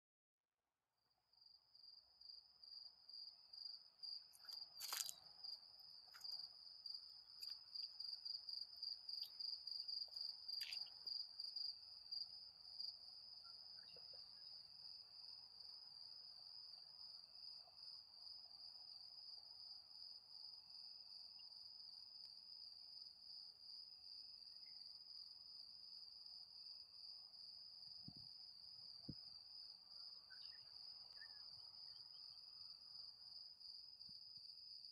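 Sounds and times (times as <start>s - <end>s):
cricket trilling: 2.3s - 17.6s, 24.6s - 33.8s.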